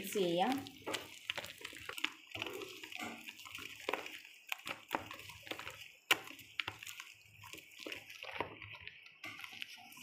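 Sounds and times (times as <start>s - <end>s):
batter squelching in a bowl: 0.0s - 10.0s.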